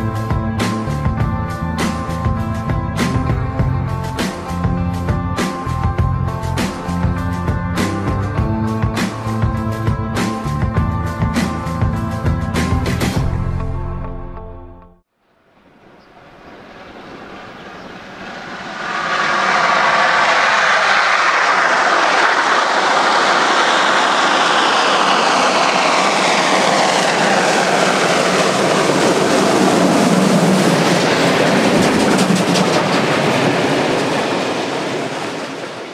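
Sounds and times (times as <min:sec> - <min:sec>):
steam locomotive exhaust roar: 0:15.7 - 0:35.9.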